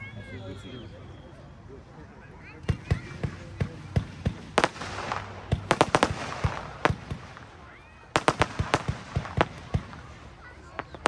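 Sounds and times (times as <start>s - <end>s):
firework launch shots and bursts: 2.7s - 11.0s.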